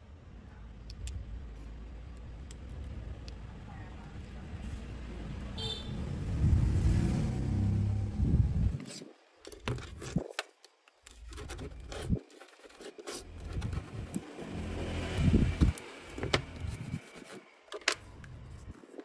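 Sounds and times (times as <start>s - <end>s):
low rubbing rumble of handling: 11.2s - 17.4s.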